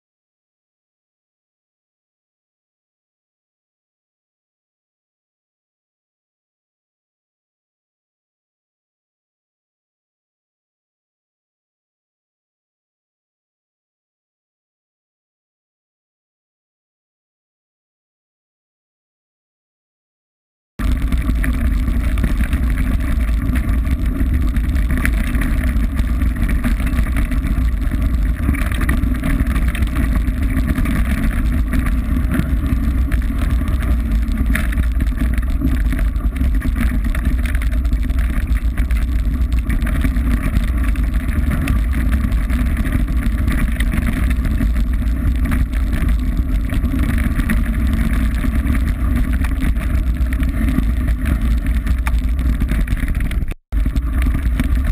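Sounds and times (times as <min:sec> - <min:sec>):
bike tyres rolling on gravel: 0:20.8 - 0:54.9
wind rumble on microphone: 0:20.8 - 0:54.9.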